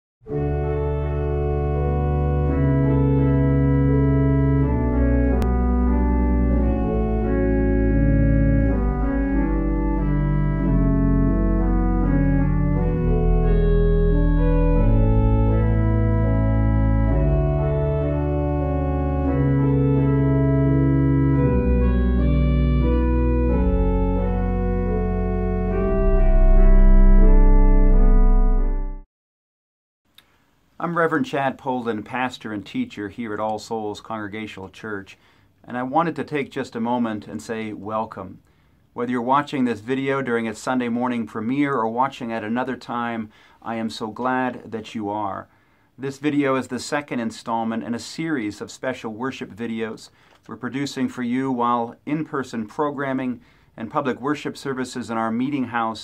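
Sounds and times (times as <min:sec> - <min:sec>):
organ playing chords: 0:00.2 - 0:29.1.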